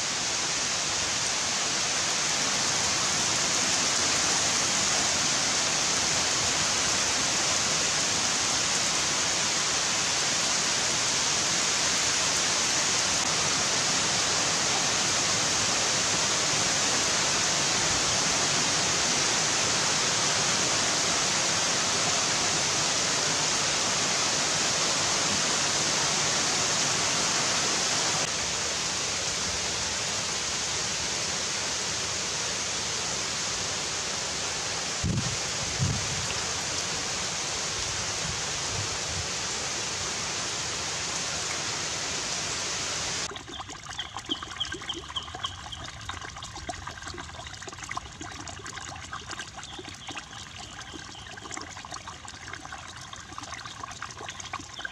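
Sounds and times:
heavy rain on trees: 0.0 - 43.3.

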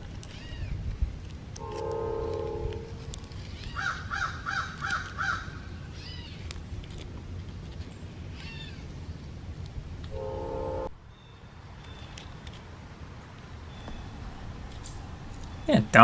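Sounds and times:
bird calling: 3.4 - 6.6, 13.7 - 16.0.

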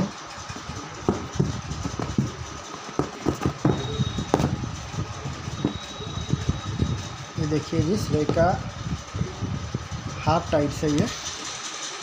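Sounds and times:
steady background hum: 0.0 - 12.0
cardboard boxes knocking and rustling: 2.9 - 4.6.

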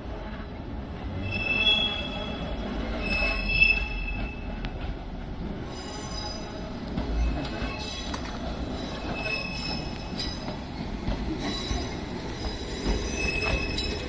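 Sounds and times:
electric train rumbling: 0.0 - 14.0
train wheels squealing: 1.2 - 4.6, 5.7 - 10.6, 11.4 - 14.0.

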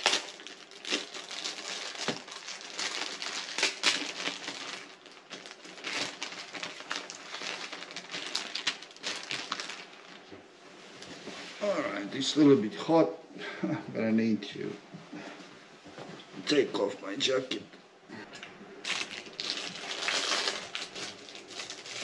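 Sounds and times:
plastic bag crinkling: 0.0 - 10.2, 18.8 - 22.0.

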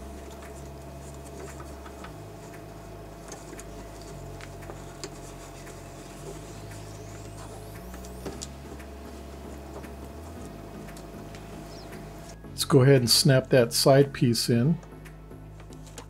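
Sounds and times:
wires rustling: 0.0 - 12.4
steady low hum: 0.0 - 16.0.

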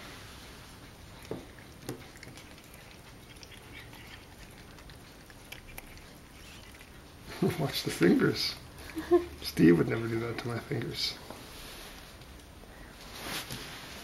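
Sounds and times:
cats eating clicks and knocks: 0.8 - 11.1.

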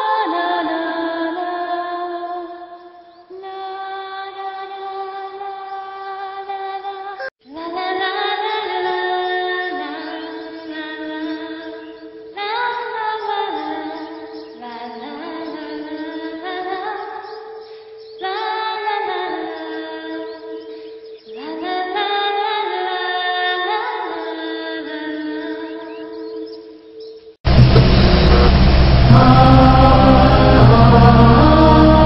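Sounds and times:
woman singing softly: 0.0 - 26.8
steady held tone: 27.5 - 32.0.

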